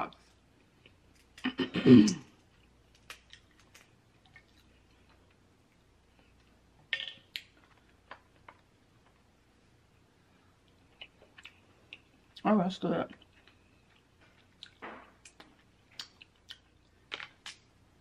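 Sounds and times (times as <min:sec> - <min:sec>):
crab shells cracking: 0:02.9 - 0:04.6.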